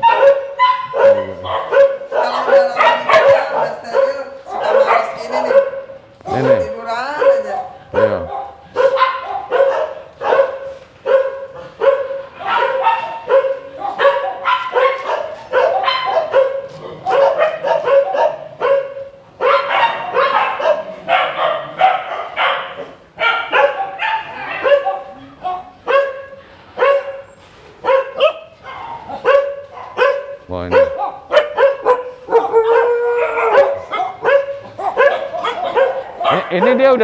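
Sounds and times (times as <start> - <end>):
dogs barking: 0.0 - 37.0.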